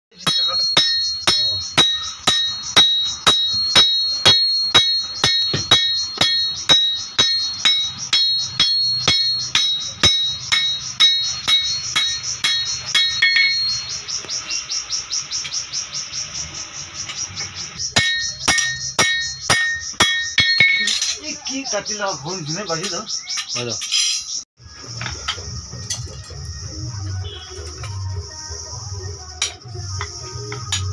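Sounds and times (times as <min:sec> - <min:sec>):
hammer striking metal on anvil: 0:00.1 - 0:14.0, 0:17.8 - 0:21.2
insects chirring: 0:00.1 - 0:30.9.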